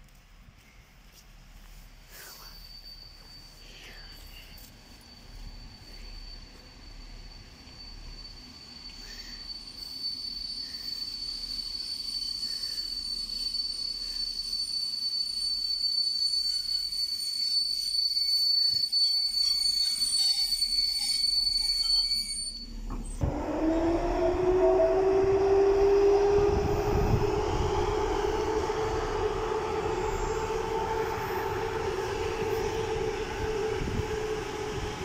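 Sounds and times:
low train rumble: 0.0 - 20.9, 22.2 - 35.0
locomotive motors whining: 18.3 - 35.0
high-pitched electric whine: 23.2 - 35.0.

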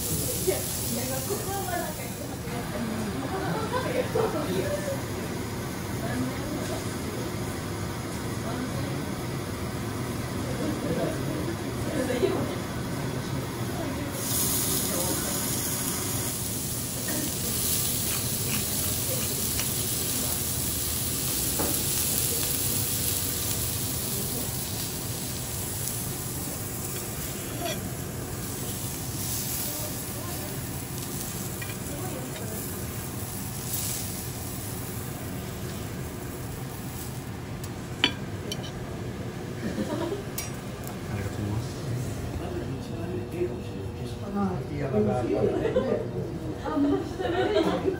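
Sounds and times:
meat sizzling on a griddle: 0.0 - 2.2, 14.2 - 37.3.

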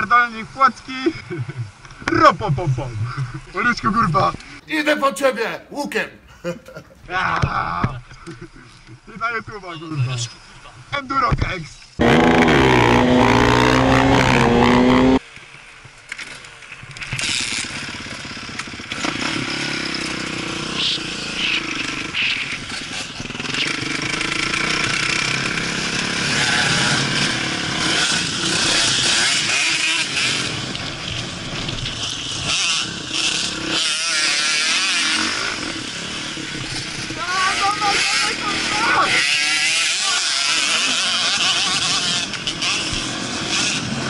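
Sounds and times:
motocross bike engine revving: 12.0 - 15.2, 17.2 - 44.0.

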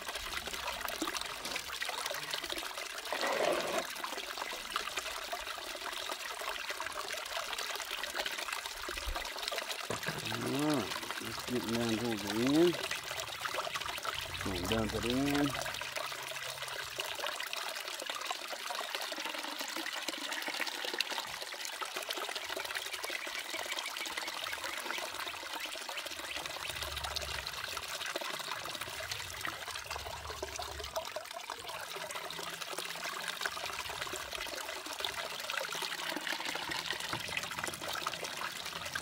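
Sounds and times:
water trickling down sluice box: 0.0 - 39.0.

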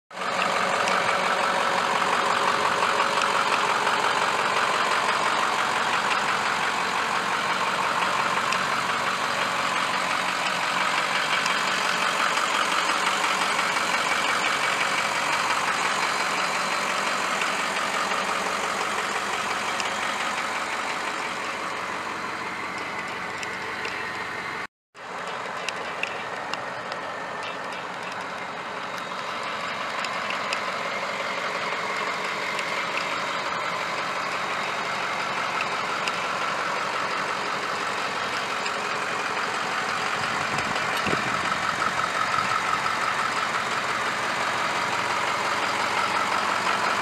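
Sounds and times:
truck engine idling: 0.1 - 47.0.

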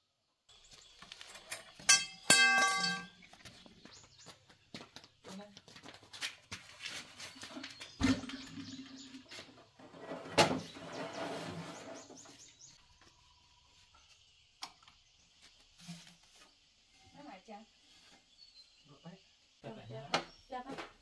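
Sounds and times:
scraping and shuffling: 0.6 - 8.3.

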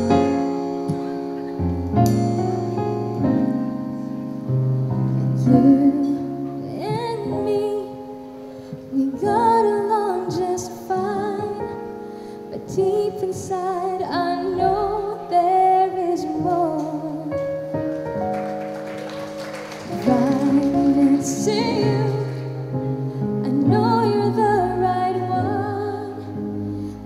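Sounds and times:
piano chords: 0.0 - 27.0
woman singing: 5.5 - 8.3, 8.9 - 17.5, 19.9 - 22.7, 23.4 - 27.0.

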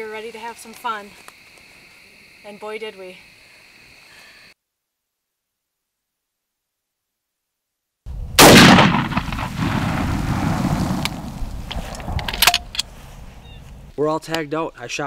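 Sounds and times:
low rumbling echo: 8.1 - 13.9
gunshot: 8.4 - 11.4.

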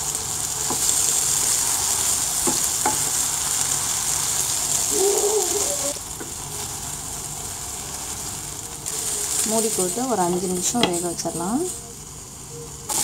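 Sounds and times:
food sizzling in oil: 0.0 - 13.0
spatula knocking pan: 2.4 - 3.2.

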